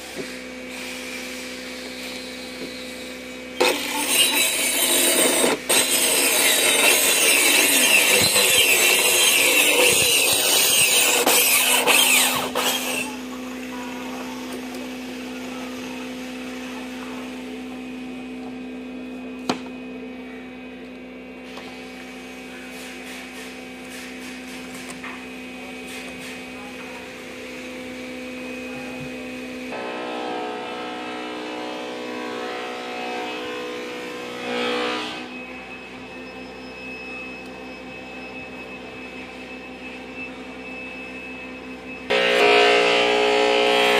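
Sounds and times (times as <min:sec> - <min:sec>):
rough sanding of wood: 0:03.8 - 0:13.1
steady hum: 0:26.6 - 0:43.9.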